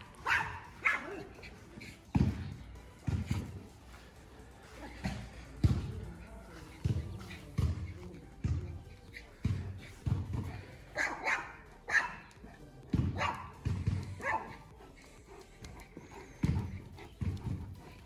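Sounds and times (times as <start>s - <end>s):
dog barking: 0.0s - 1.5s, 10.4s - 18.0s.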